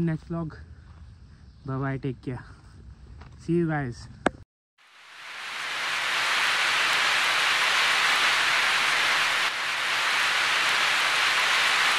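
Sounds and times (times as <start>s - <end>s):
rain on car roof: 4.9s - 11.9s.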